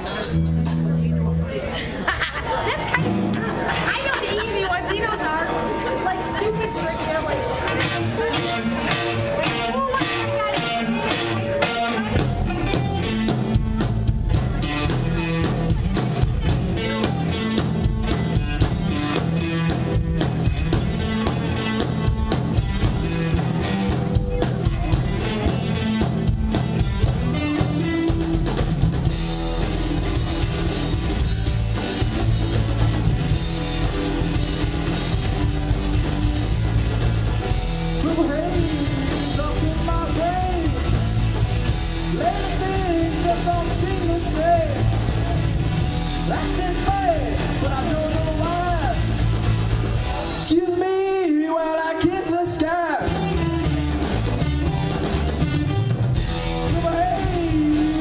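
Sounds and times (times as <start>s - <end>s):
rock band playing: 0.0s - 58.0s
lead guitar bent notes: 5.2s - 50.5s.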